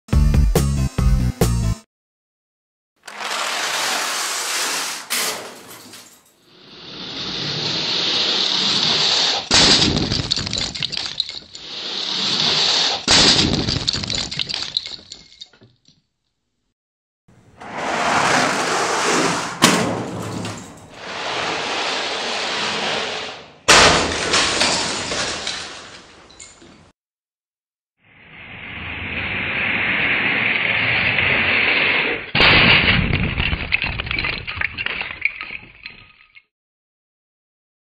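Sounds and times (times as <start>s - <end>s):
plastic bricks clattering: 3.0s - 4.1s, 9.8s - 11.6s, 23.9s - 26.6s, 33.2s - 36.4s
toy train rolling on plastic track: 3.0s - 4.8s
toy train crashing into glass: 3.0s - 6.4s, 8.0s - 15.6s, 19.6s - 21.6s, 23.7s - 26.9s, 32.1s - 36.5s
crash into glass pane: 4.8s - 6.3s, 19.5s - 21.2s, 23.7s - 26.6s, 32.3s - 36.3s.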